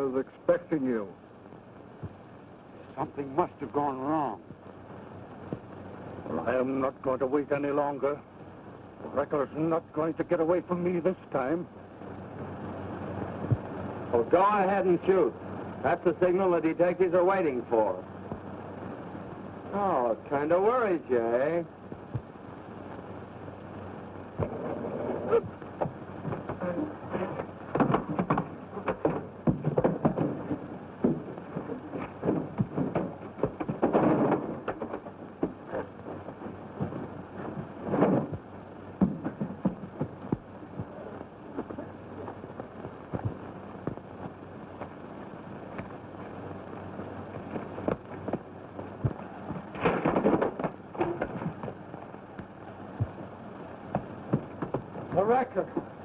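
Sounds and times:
film soundtrack hiss: 0.0 - 56.0
crashing and scuffling: 24.4 - 45.0, 47.4 - 53.3
fistfight thuds and shuffling: 25.3 - 46.1, 47.3 - 55.9
wooden chair breaking: 27.2 - 35.8, 49.6 - 51.8.

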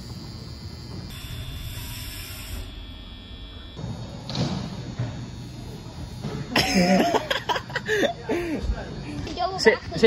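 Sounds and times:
thump: 3.8 - 5.2.

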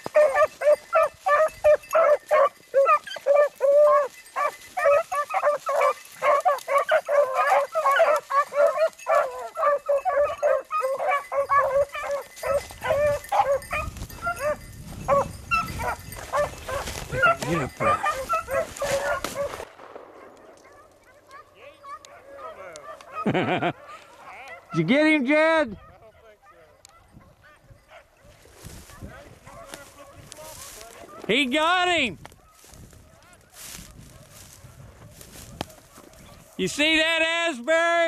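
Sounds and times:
dogs baying and barking: 0.0 - 31.5, 32.2 - 36.7.

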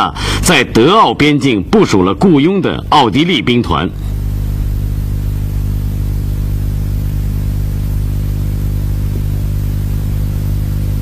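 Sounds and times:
low humming drone: 3.9 - 11.0.

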